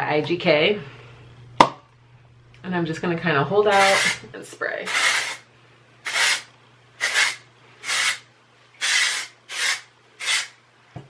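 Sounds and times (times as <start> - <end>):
hairspray hissing: 3.7 - 4.2, 4.9 - 5.4, 6.0 - 8.2, 8.8 - 10.6.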